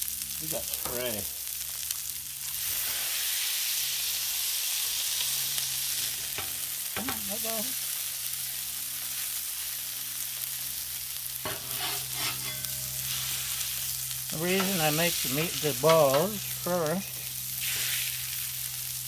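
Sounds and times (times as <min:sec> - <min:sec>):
patties sizzling on griddle: 0:00.0 - 0:19.0
metal spatula smashing patties: 0:11.4 - 0:13.2.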